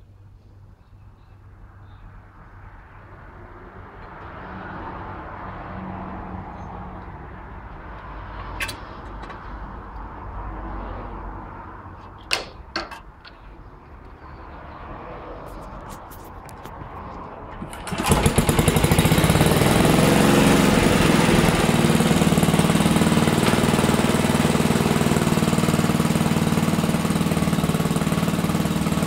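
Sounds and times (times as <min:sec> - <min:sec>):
starter cord clicks and knocks: 0:08.4 - 0:09.5, 0:12.0 - 0:13.4.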